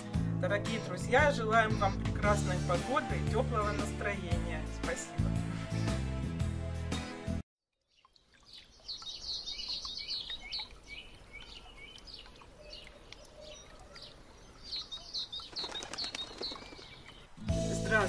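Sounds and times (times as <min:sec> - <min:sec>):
small birds chirping: 0:07.8 - 0:17.4.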